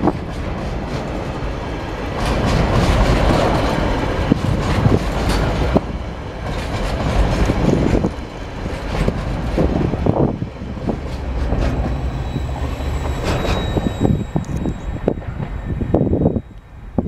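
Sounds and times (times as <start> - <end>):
freight train wheels rumbling: 0.0 - 17.0.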